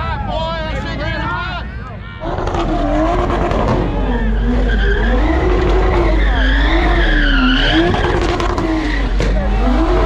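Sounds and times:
tyres skidding on asphalt: 2.1 - 10.0
car engine revving: 2.2 - 10.0.

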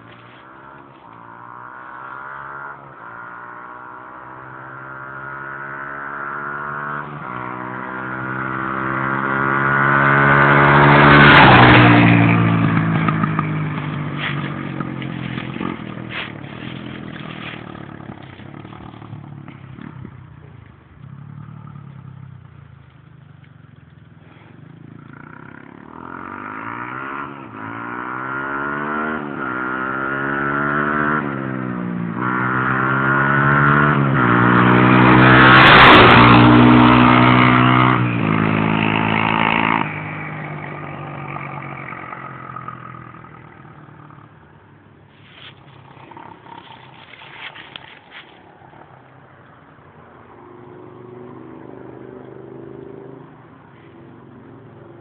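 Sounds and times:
dirt bike engine revving: 0.0 - 20.2, 24.2 - 44.3.

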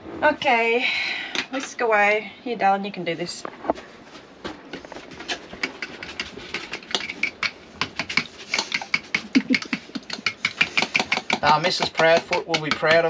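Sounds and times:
whisk clicking against a bowl: 5.6 - 13.0.

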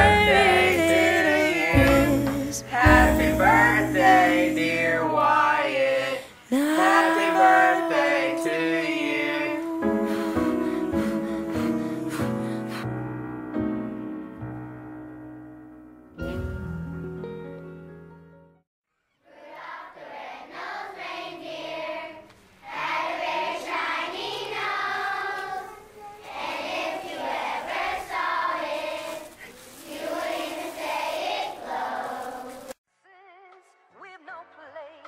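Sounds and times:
children's choir singing: 0.0 - 12.8, 19.2 - 32.8.

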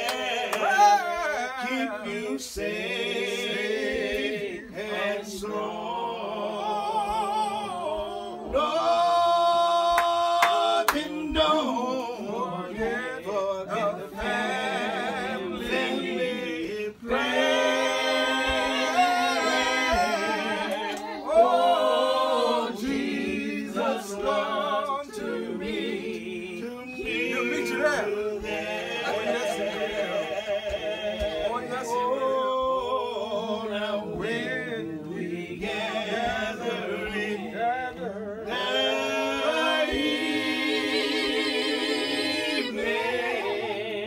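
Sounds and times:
person singing unaccompanied: 0.0 - 44.0.

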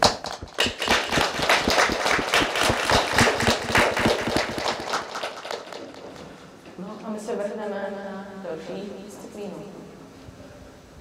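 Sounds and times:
small group clapping: 0.0 - 6.4.

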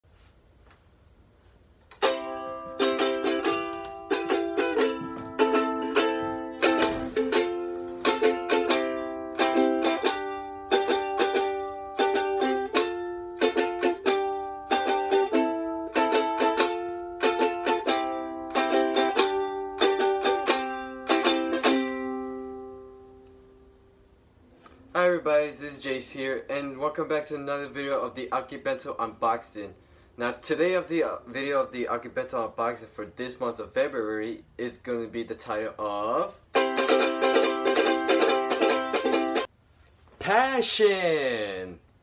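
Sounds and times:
ukulele strumming chords: 1.9 - 24.0, 36.5 - 39.5.

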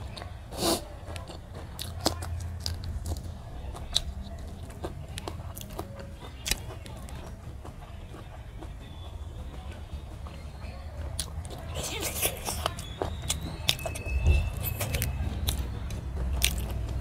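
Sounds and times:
chewing and smacking: 0.0 - 17.0
sharp wet clicks: 14.7 - 17.0.

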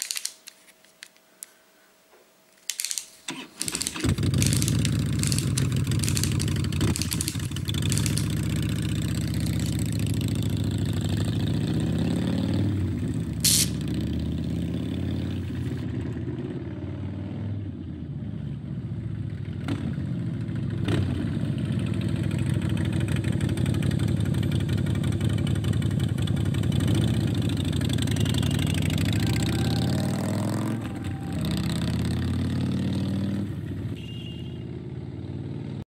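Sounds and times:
motorcycle engine running: 3.6 - 16.8, 18.1 - 33.9.

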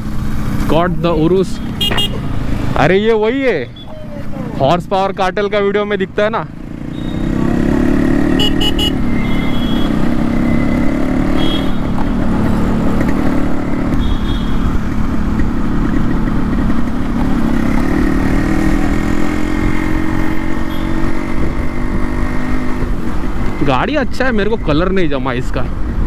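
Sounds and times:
motorcycle engine running: 3.8 - 23.8.

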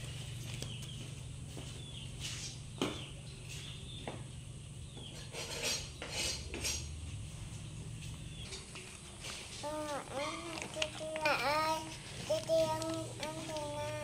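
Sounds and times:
steady low hum: 0.0 - 14.0
crisp rustling: 9.3 - 14.0.

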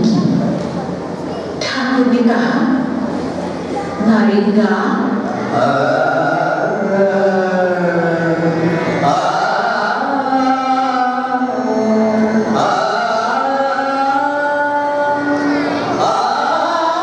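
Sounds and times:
man singing devotional song: 5.6 - 17.0.

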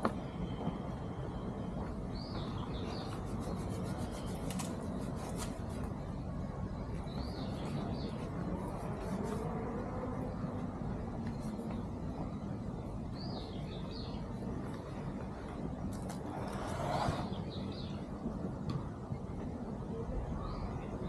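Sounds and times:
steady low rumble: 0.0 - 4.2, 4.9 - 21.0.

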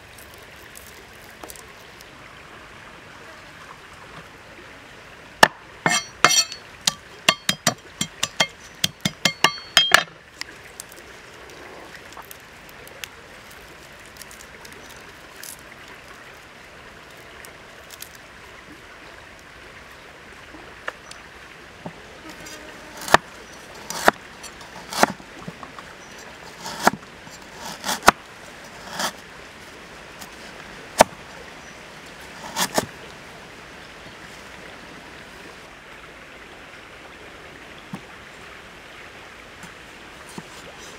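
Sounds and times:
stream rushing: 0.0 - 40.9
cleaver chopping on wooden board: 5.4 - 10.1, 23.0 - 24.2, 24.8 - 25.2, 26.6 - 27.0.

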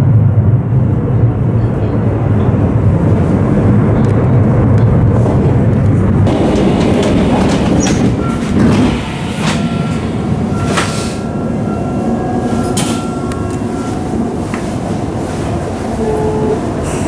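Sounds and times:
train rolling rumble: 0.0 - 17.0
wheels clicking over rail joints: 6.3 - 11.0.

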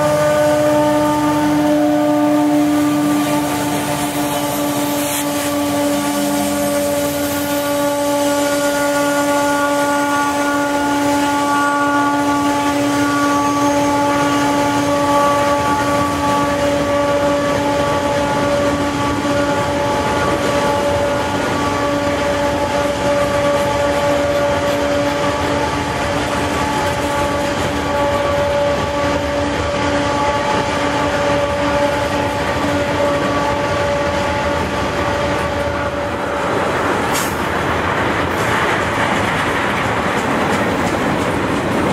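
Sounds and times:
locomotive engines rumbling: 0.0 - 41.9
freight cars rolling: 34.5 - 41.9.

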